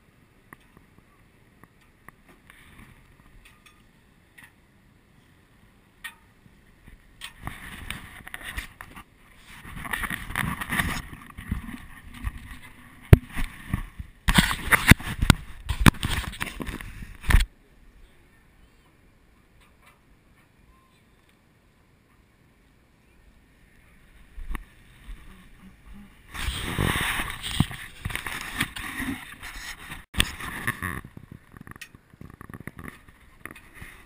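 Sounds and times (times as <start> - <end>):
rustling: 6.8 - 17.5, 23.8 - 34.0.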